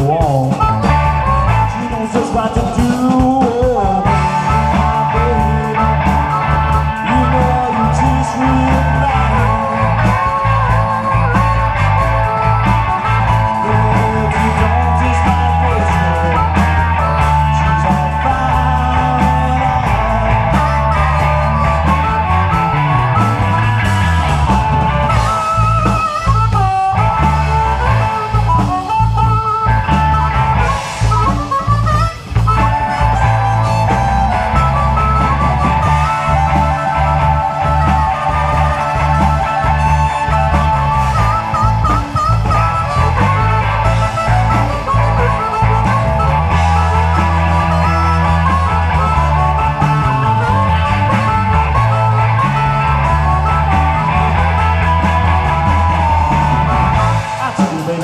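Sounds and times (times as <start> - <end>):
blues band playing: 0.0 - 58.0
electric guitar bending lead: 0.0 - 58.0.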